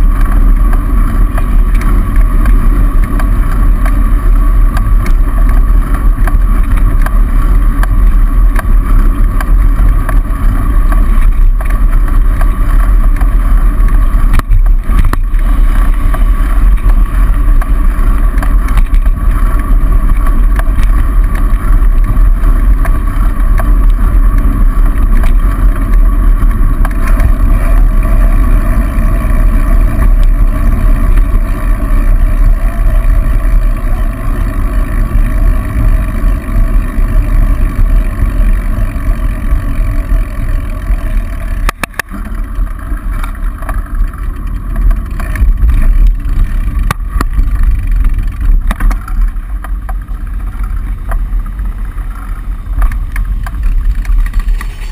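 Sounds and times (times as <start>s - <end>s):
passing car traffic: 0.0s - 54.9s
wind rumble on microphone: 0.0s - 54.9s.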